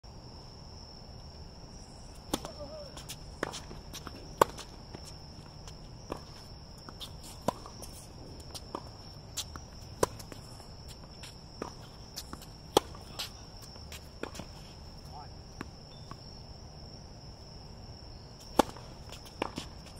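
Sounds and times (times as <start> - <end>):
crickets trilling: 0.1 - 19.9
tennis ball hits and bounces: 2.2 - 14.6, 18.4 - 19.9.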